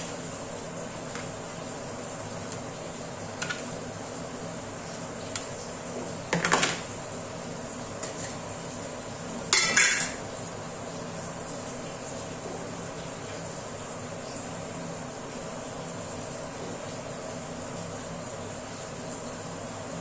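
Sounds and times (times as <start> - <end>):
steel kitchenware clinking: 9.5 - 10.2
steel lid clattering: 9.6 - 10.2.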